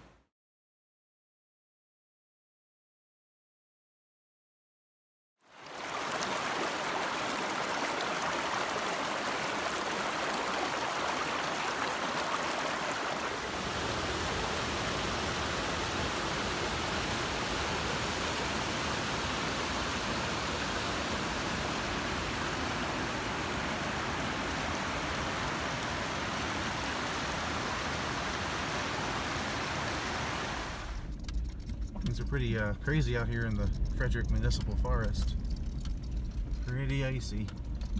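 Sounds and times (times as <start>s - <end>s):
stream rushing over rocks: 5.5s - 31.0s.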